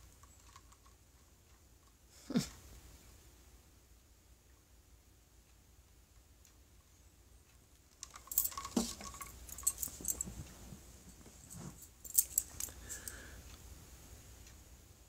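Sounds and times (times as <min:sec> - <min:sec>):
small objects clicking and clinking: 0:07.8 - 0:10.3, 0:12.0 - 0:13.2.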